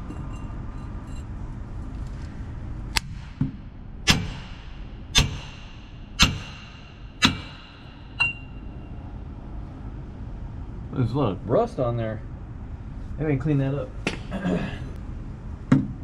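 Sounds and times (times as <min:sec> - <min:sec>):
hammer striking metal pipe driver: 0:03.0 - 0:08.8.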